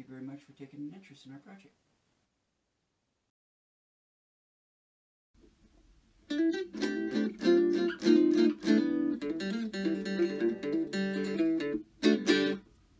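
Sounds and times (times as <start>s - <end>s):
guitar strummed and plucked: 6.3s - 12.7s.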